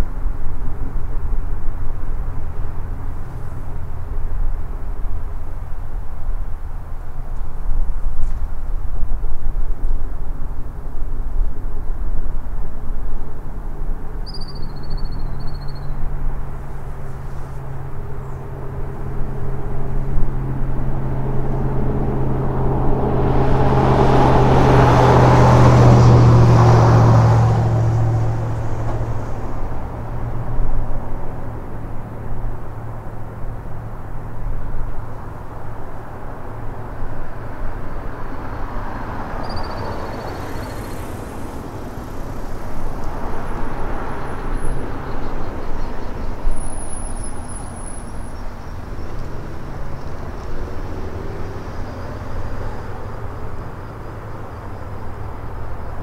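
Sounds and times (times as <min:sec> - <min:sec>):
road vehicle passing: 0:13.5 - 0:56.0.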